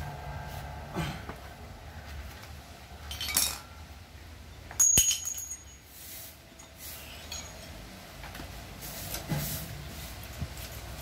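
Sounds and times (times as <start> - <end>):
metal-on-metal clink: 3.0 - 3.8, 4.7 - 5.9, 6.6 - 7.8.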